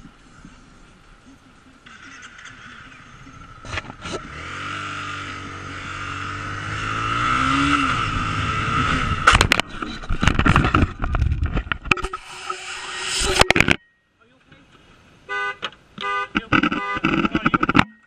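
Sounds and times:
motorcycle engine accelerating: 1.9s - 11.5s
knocks and scraping of falling bike: 9.2s - 12.2s, 16.4s - 18.0s.

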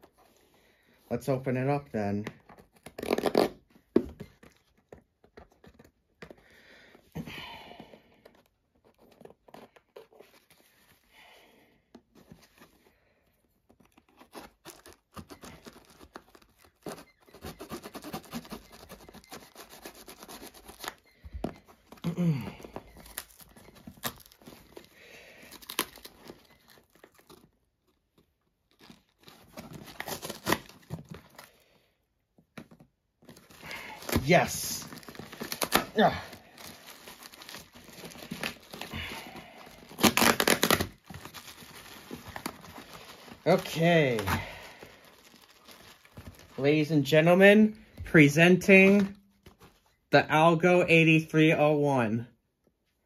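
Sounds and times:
cardboard box tearing: 13.8s - 27.5s, 28.7s - 31.5s, 33.3s - 46.6s.

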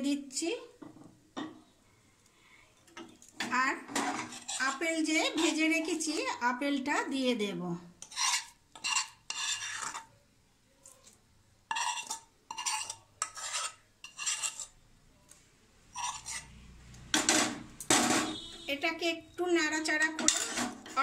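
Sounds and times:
spoon scraping against metal: 3.9s - 6.4s, 8.0s - 10.1s, 10.8s - 14.8s, 15.9s - 16.6s, 19.9s - 21.0s.

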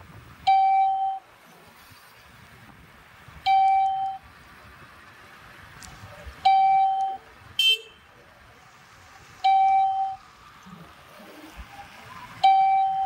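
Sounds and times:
road noise hiss: 0.0s - 13.0s
electronic beeps: 12.1s - 13.0s
harsh electronic beep: 12.4s - 13.0s.

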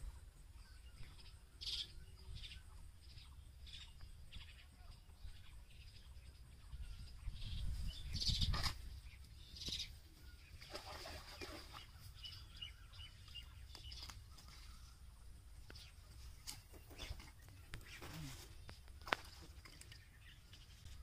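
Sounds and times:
birds chirping: 0.0s - 21.0s
rustle: 7.6s - 21.0s.

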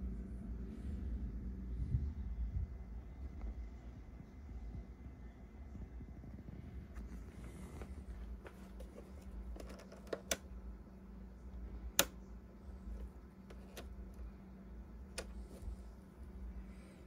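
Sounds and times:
low steady hum: 0.0s - 17.0s
plastic switch clicks: 9.6s - 10.5s, 11.9s - 12.2s.

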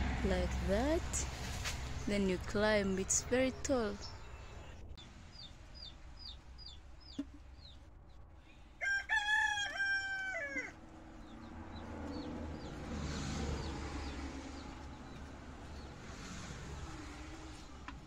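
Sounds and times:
rooster crowing: 8.8s - 10.8s.

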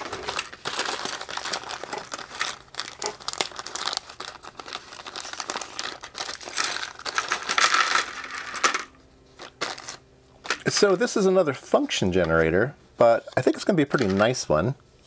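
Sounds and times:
plastic bag crinkling: 0.0s - 10.0s
small parts rattling onto tray: 6.6s - 8.9s.

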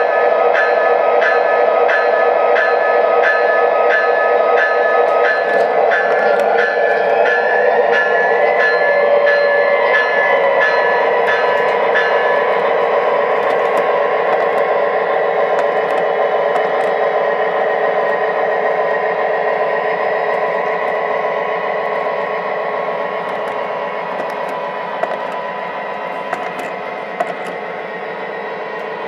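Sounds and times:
model train wheels rumbling on rail: 4.6s - 29.0s
wheel clicks on track joints: 10.7s - 17.2s, 23.1s - 25.5s, 26.1s - 27.6s.

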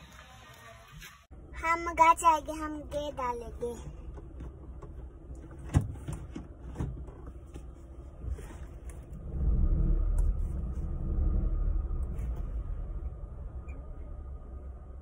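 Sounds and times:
clicks and knocks inside a car: 3.7s - 9.1s
steady low rumble: 6.4s - 15.0s.

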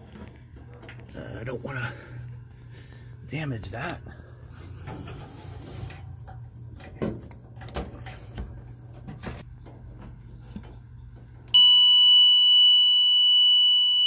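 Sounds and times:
circuit tester tone: 11.6s - 14.0s.

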